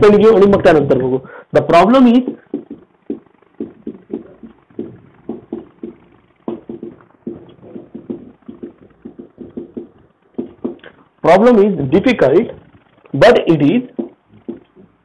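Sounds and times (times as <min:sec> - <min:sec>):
marker writing on whiteboard: 0:02.2 - 0:10.9, 0:13.9 - 0:15.0.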